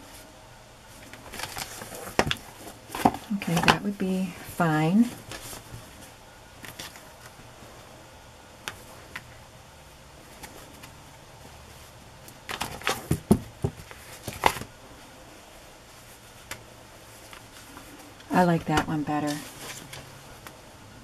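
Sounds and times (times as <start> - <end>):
knocks and rustles: 12.5 - 14.7.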